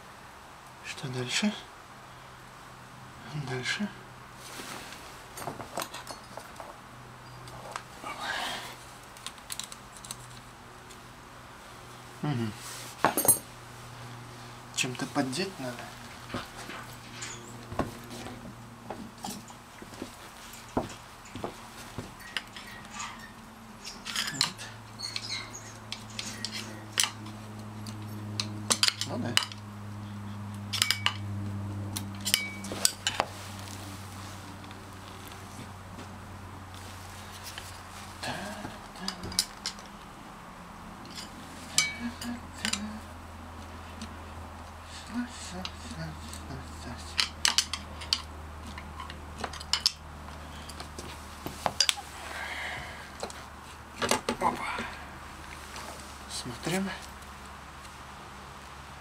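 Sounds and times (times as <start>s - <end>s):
steady low hum: 0.0s - 59.0s
scraping rustle: 4.3s - 11.0s, 12.5s - 13.3s, 55.4s - 57.2s
metal tools clinking on engine parts: 5.3s - 7.7s, 13.0s - 13.5s, 16.2s - 17.8s, 20.4s - 29.6s, 30.7s - 31.3s, 32.1s - 33.2s, 41.0s - 42.9s, 47.1s - 50.9s
metallic clicks and clinks: 22.2s - 29.6s, 30.7s - 31.3s.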